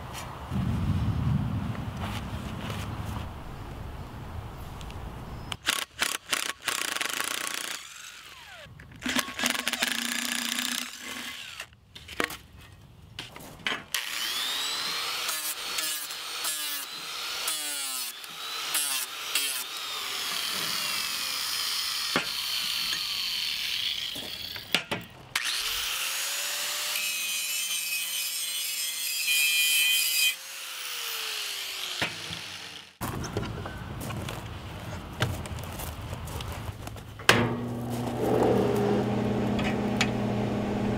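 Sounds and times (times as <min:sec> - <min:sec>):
angle grinder grinding steel: 0:14.0 - 0:24.7, 0:25.4 - 0:33.0, 0:37.5 - 0:40.9.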